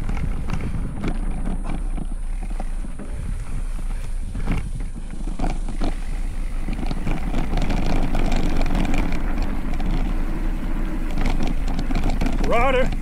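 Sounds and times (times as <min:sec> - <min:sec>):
mountain bike tyres rumbling on dirt: 0:00.0 - 0:13.0
sharp rattling knocks: 0:04.4 - 0:13.0.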